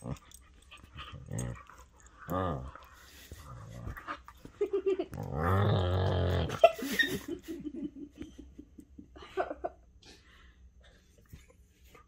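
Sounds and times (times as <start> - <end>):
dogs play vocalising: 0.0 - 7.2.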